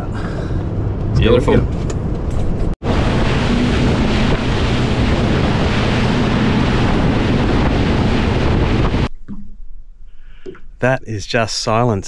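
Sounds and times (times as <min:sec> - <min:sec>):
low engine hum: 0:00.0 - 0:09.9
wind buffeting microphone: 0:00.8 - 0:09.1
rush of boat wake: 0:02.8 - 0:09.1.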